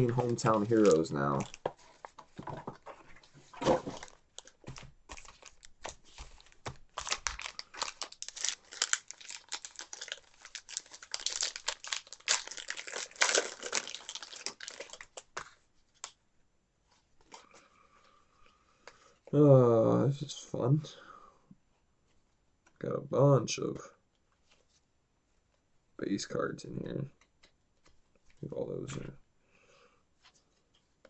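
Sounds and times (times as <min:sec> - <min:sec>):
plastic wrappers crinkling: 0:00.0 - 0:02.9, 0:03.5 - 0:15.6
pack being torn open: 0:06.4 - 0:15.3.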